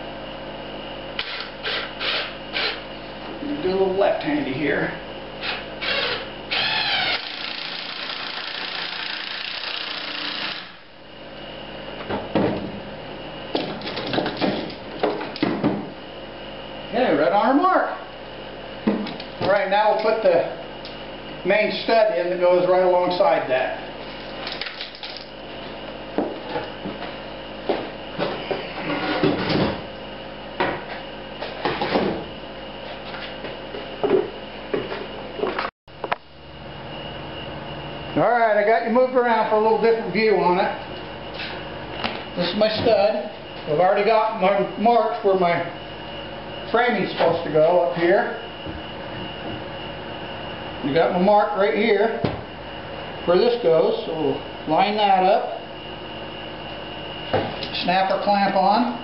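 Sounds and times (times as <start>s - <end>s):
cordless drill driving screw: 5.4s - 10.7s.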